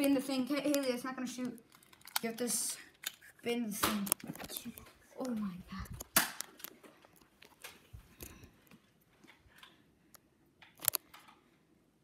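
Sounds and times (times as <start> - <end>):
camera handling rustle: 1.6 - 8.4.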